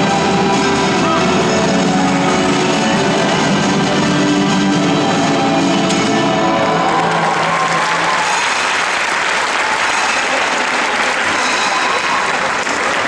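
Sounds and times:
music: 0.0s - 13.0s
audience applauding: 6.1s - 13.0s.

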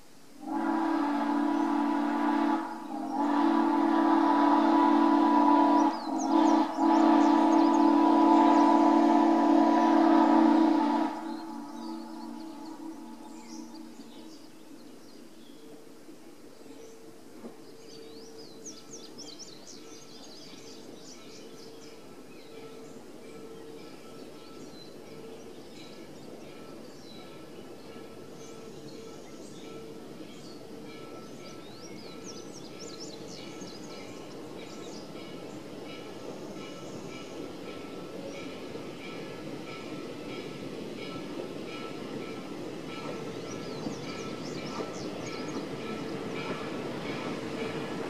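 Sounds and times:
steam locomotive whistle blasts: 0.4s - 14.1s
songbirds chirping: 0.6s - 48.0s.

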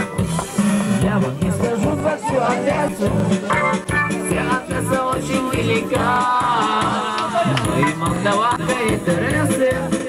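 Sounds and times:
loud dance music: 0.0s - 10.0s.

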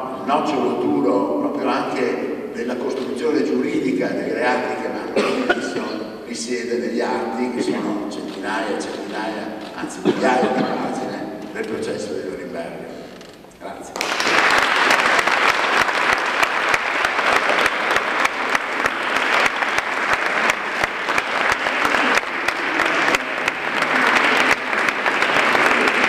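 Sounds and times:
audience applauding: 14.0s - 26.0s.

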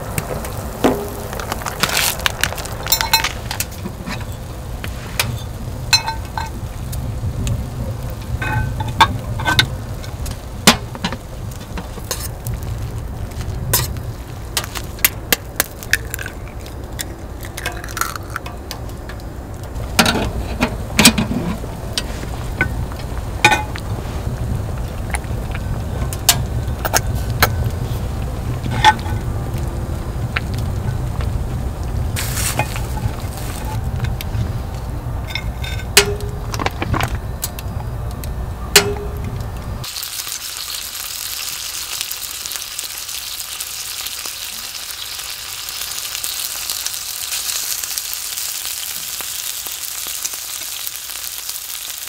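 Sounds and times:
steady low rumble: 0.0s - 39.9s.

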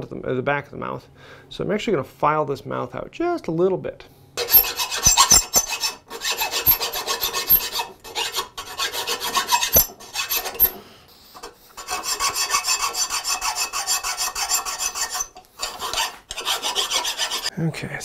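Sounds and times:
metal file rasping on cast iron: 4.4s - 17.5s.

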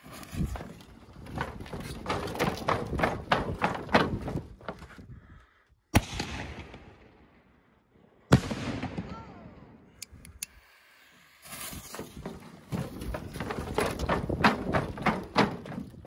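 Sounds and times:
knocks and scuffs: 11.6s - 16.0s.

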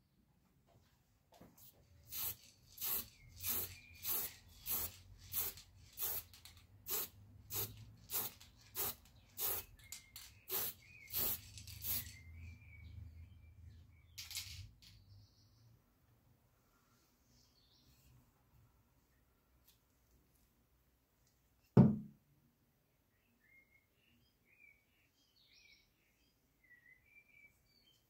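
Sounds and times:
aerosol spray can hissing: 2.0s - 9.8s, 10.5s - 12.2s.

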